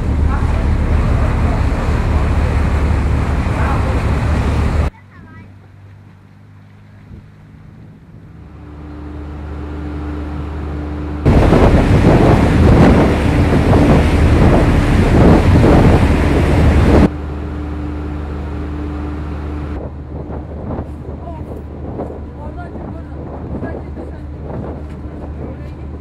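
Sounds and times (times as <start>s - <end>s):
ship engines droning: 0.0s - 26.0s
wind buffeting microphone: 11.2s - 17.1s, 19.6s - 26.0s.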